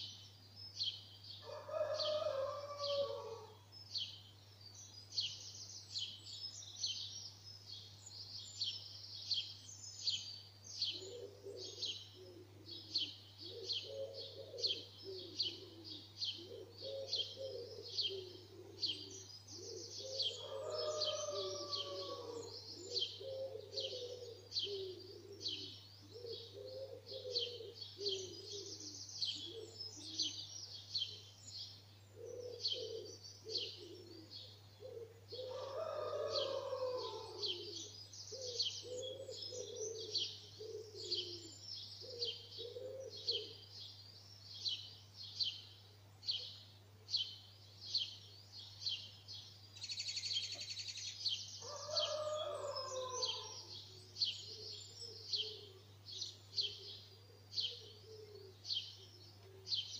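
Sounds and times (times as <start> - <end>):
songbirds chirping: 0.0 - 59.9
pigeon cooing: 10.9 - 28.8, 32.2 - 43.6, 51.6 - 53.7, 54.5 - 55.8, 56.6 - 59.9.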